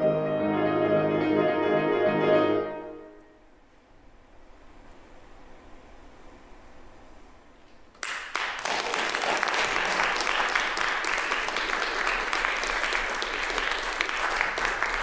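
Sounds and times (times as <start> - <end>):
audience applause: 8.0 - 15.0.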